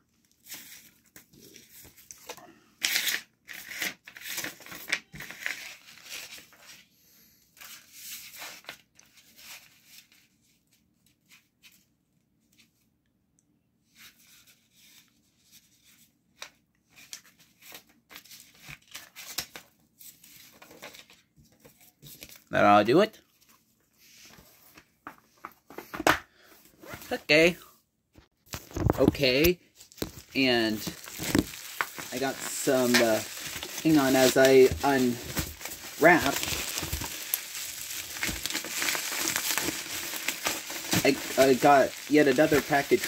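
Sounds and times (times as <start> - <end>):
paper rustling: 28.4 - 43.0.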